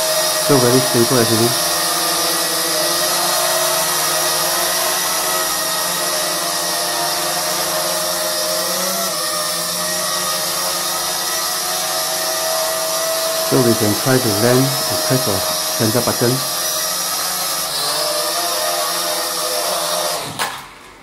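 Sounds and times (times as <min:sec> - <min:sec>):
toy drone propellers whining: 0:00.0 - 0:20.6.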